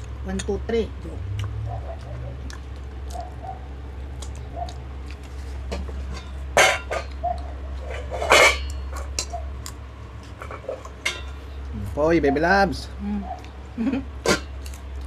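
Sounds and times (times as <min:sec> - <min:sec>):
lip smacks and mouth clicks: 0:01.4 - 0:03.4, 0:04.1 - 0:05.4.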